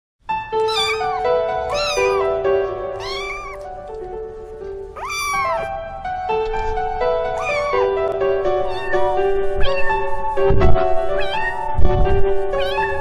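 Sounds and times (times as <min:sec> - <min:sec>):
simple tune of held notes: 0:00.3 - 0:13.0
cat meowing: 0:00.6 - 0:02.3, 0:03.0 - 0:03.7, 0:04.9 - 0:05.8, 0:07.4 - 0:07.9, 0:08.5 - 0:10.3, 0:11.0 - 0:13.0.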